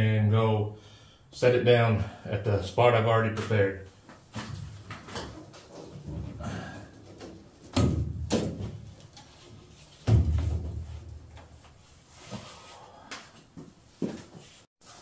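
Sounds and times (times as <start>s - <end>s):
heavy thuds on sheet metal: 7.7s - 8.8s, 10.0s - 11.4s.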